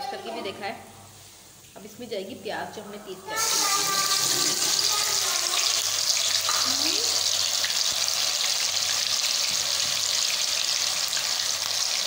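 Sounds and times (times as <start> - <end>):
onion paste sizzling in oil: 3.3 - 12.0.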